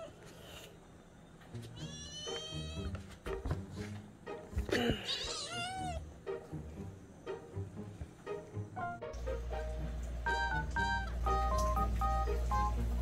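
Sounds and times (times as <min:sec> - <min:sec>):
kitten meowing: 0:01.8 - 0:02.9, 0:05.0 - 0:06.0.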